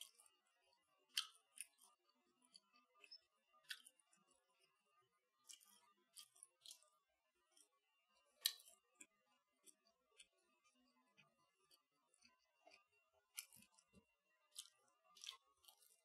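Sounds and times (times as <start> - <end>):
person chewing crunchy food: 3.7 - 4.0, 5.4 - 6.8, 8.4 - 8.8, 13.4 - 16.0.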